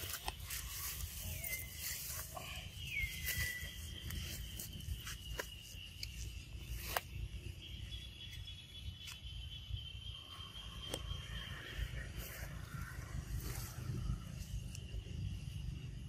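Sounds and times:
leaves and branches rustling: 0.0 - 9.4
insect drone: 0.0 - 16.0.

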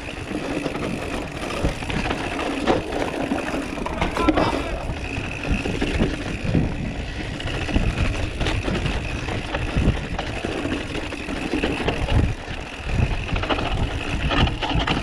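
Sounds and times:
bike rattling over bumps: 0.0 - 15.0
bike tyres rumbling on dirt: 0.0 - 15.0.

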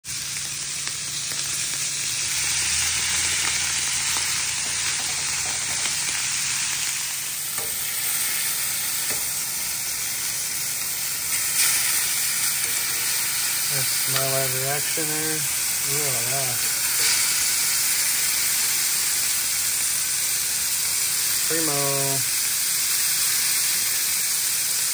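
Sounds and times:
steaks sizzling in hot oil: 0.0 - 24.9.

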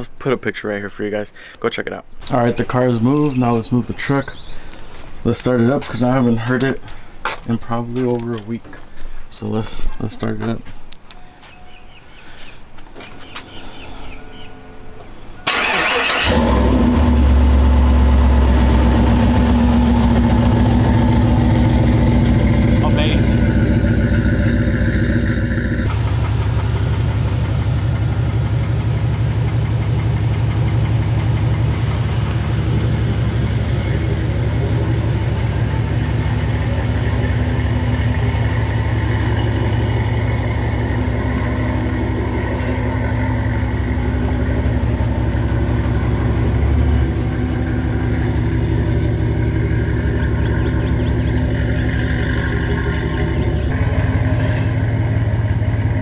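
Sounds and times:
truck engine idling loud exhaust: 15.2 - 56.0.

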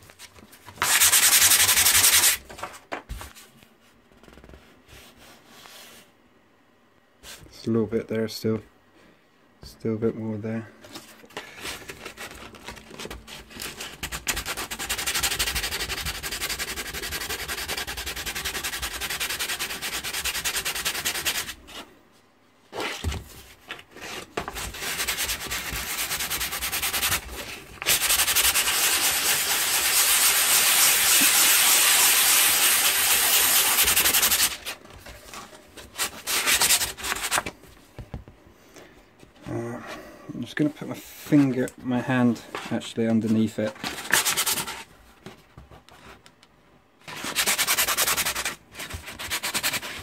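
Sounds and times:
sandpaper rubbing on canvas: 0.8 - 2.4, 13.4 - 21.6, 24.0 - 34.7, 36.0 - 37.4, 44.0 - 44.9, 47.1 - 50.0.

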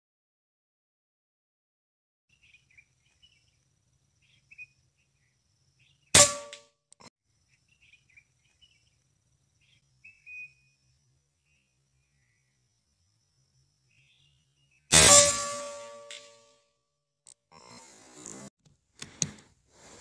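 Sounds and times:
air rifle shot: 6.2 - 6.6, 14.9 - 16.3.

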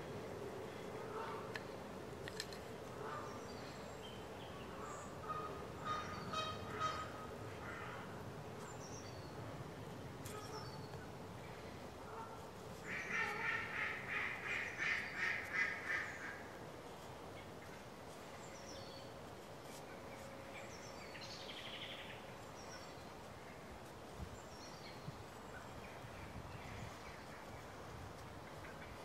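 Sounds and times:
faint high chirping birdsong: 10.2 - 11.8.

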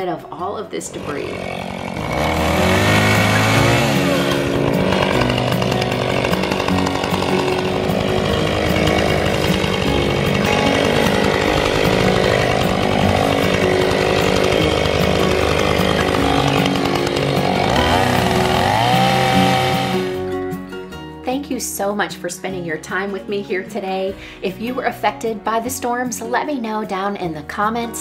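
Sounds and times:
chainsaw revving: 0.4 - 20.4.

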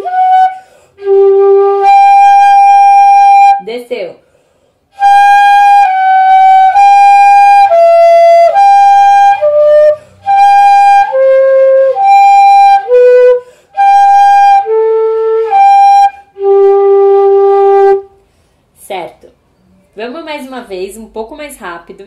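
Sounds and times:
fife playing notes: 0.0 - 3.6, 4.9 - 18.2.

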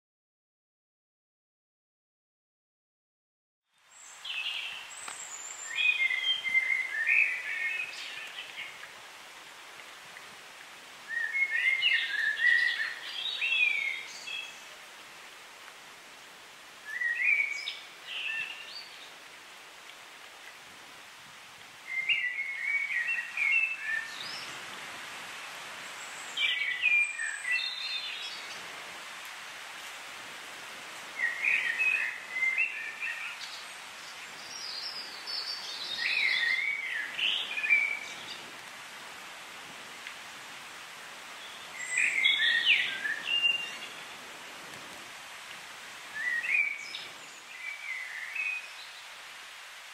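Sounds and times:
songbird singing: 3.7 - 15.0, 16.8 - 19.3, 21.8 - 24.8, 25.8 - 28.8, 31.0 - 38.6, 41.2 - 44.5, 45.9 - 49.9
steady background hiss: 3.7 - 49.9.

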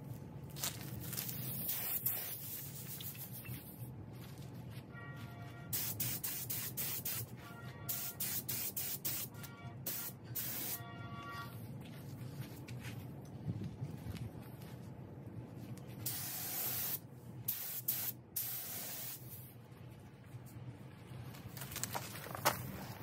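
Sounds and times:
spray gun hissing: 1.6 - 3.2, 5.7 - 7.3, 7.9 - 9.3, 9.9 - 10.8, 16.1 - 19.3.

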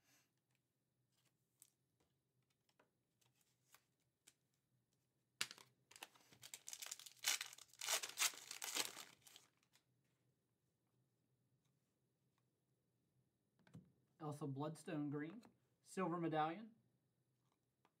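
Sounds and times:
cards being handled: 5.4 - 9.4
foil wrapper crinkling: 5.9 - 9.5
foil wrapper tearing: 6.4 - 9.5.

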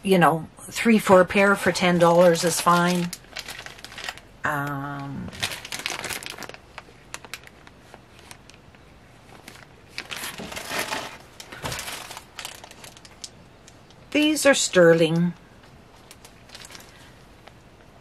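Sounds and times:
plastic bag crinkling: 1.4 - 14.0, 15.9 - 17.6.

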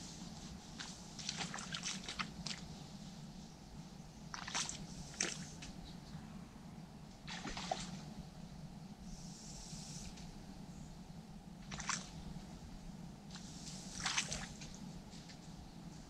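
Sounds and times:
fish splashing at surface: 7.3 - 8.0, 11.6 - 12.1.

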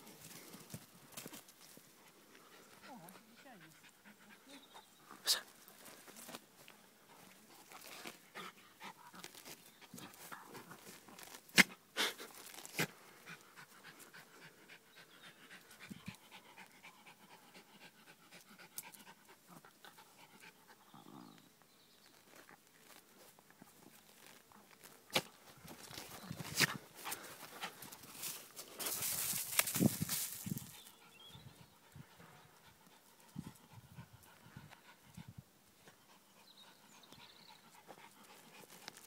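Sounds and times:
dog panting and snuffling: 1.8 - 20.8, 25.7 - 29.8, 30.6 - 39.0.

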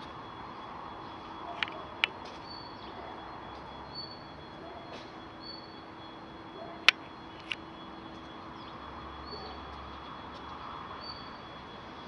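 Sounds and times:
steady faint tone: 0.3 - 2.2, 5.8 - 8.3.

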